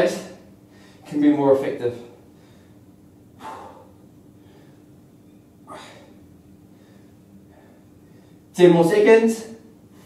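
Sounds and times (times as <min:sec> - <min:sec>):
faint steady hum: 0:00.0 - 0:10.0
man breathing forcefully: 0:02.3 - 0:05.0, 0:05.6 - 0:08.5.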